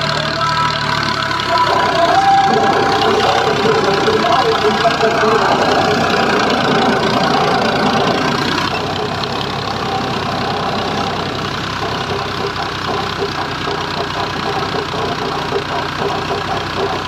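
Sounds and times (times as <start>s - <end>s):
tractor diesel engine: 0.0s - 17.0s.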